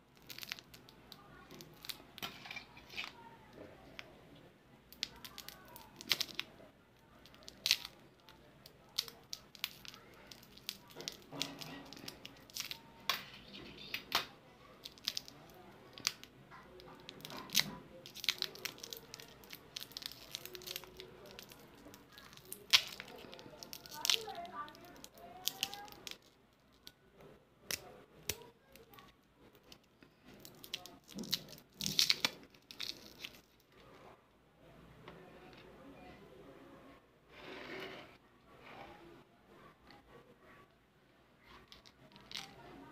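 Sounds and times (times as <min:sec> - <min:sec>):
plastic wrapper crinkling: 0:04.9 - 0:06.5, 0:07.1 - 0:27.0, 0:28.3 - 0:33.9, 0:41.5 - 0:42.8.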